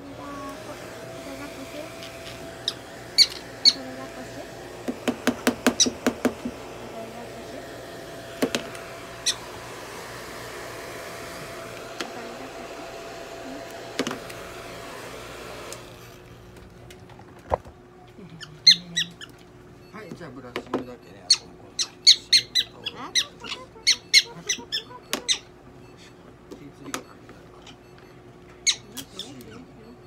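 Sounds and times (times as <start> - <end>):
hair dryer blowing: 0.0 - 16.3
prairie dog squeaking: 2.6 - 3.8, 5.8 - 6.0, 18.4 - 19.3, 21.2 - 25.6, 28.6 - 29.7.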